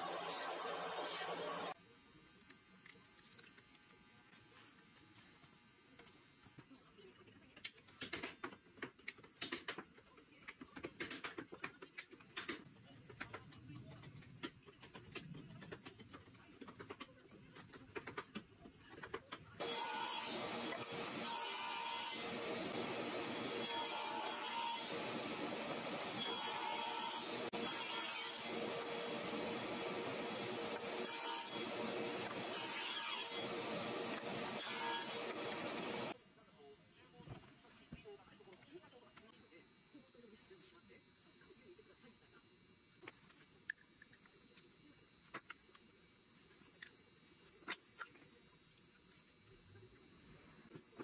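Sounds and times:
table saw running: 0.0 - 1.8, 19.6 - 36.2
power tool running: 0.0 - 6.6, 19.6 - 36.2.

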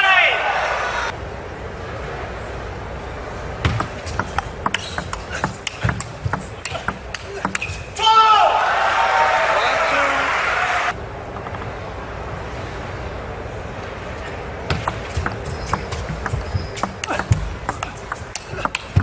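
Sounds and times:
indoor arena ambience: 0.0 - 19.0
loud arena noise: 0.0 - 19.0
table tennis ball tapping on table: 3.7 - 7.8, 11.4 - 11.7, 14.7 - 19.0.

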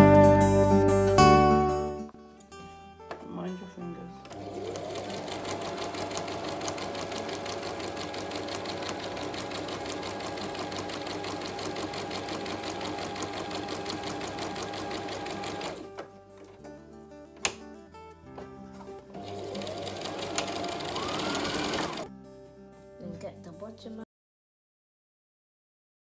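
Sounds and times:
sewing machine stitching: 4.3 - 16.0, 19.2 - 22.1.

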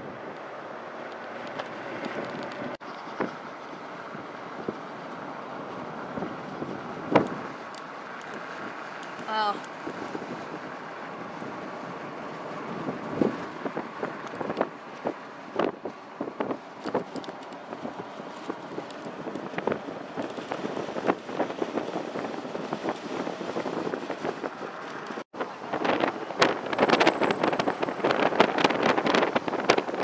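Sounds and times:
road and wind noise in vehicle: 0.0 - 30.0.

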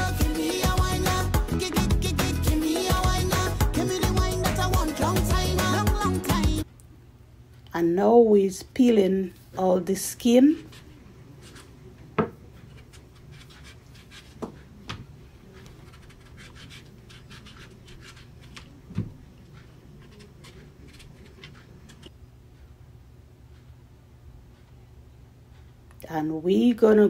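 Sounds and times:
knife scraping fruit skin: 12.6 - 14.8, 15.5 - 18.8, 19.4 - 22.1.

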